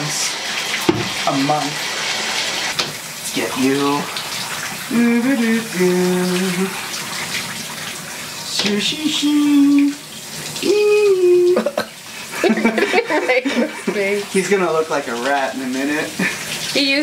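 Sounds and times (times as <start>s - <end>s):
shower water spraying: 0.0s - 17.0s
person singing wordless notes: 4.9s - 6.8s, 8.5s - 10.0s, 10.6s - 11.8s.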